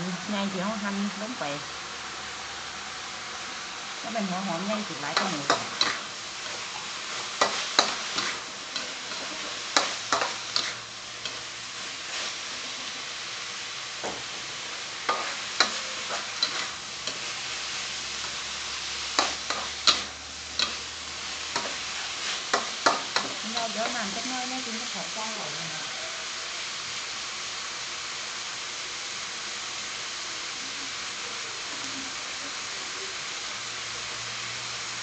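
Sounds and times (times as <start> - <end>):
meat and onion sizzling in a wok: 0.0 - 35.0
metal spatula scraping a wok: 4.6 - 13.0, 15.0 - 25.0.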